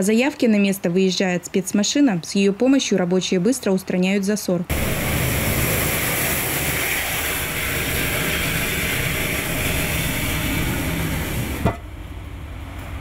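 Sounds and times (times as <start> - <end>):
high-pressure water jet hissing: 4.7 - 11.8
truck engine and pump running: 4.7 - 13.0.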